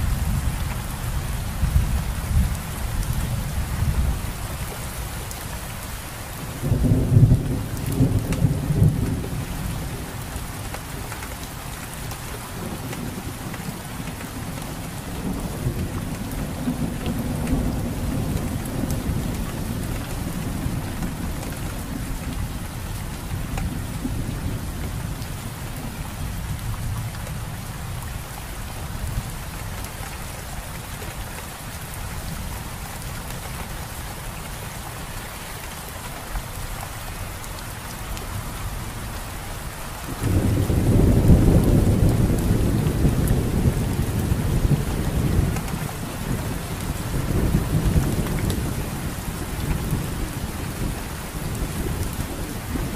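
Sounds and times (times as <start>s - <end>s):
steady rain falling: 0.0s - 52.9s
thunder rumbling: 40.0s - 52.9s.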